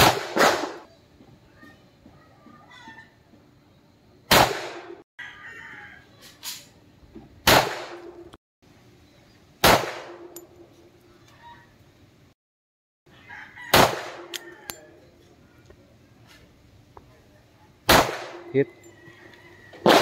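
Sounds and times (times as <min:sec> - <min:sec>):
pistol shots: 0:00.0 - 0:00.8, 0:04.3 - 0:05.0, 0:07.4 - 0:08.1, 0:09.6 - 0:10.3, 0:13.7 - 0:14.5, 0:17.9 - 0:18.6
metallic ring of steel target: 0:09.9 - 0:10.7.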